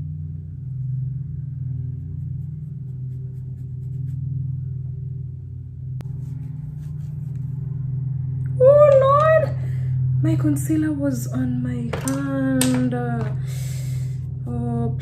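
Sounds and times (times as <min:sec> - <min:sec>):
steady low hum: 0:00.0 - 0:15.0
makeup brush dabbing and scratching: 0:01.8 - 0:04.4, 0:06.1 - 0:07.7, 0:11.9 - 0:13.5.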